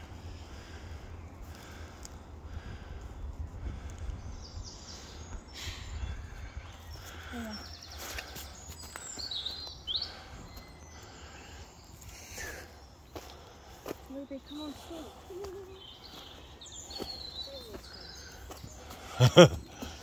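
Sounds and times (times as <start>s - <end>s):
wind rumble on microphone: 2.3s - 6.8s
footsteps on leaf litter: 13.1s - 20.0s
high bird chirps: 14.4s - 19.3s.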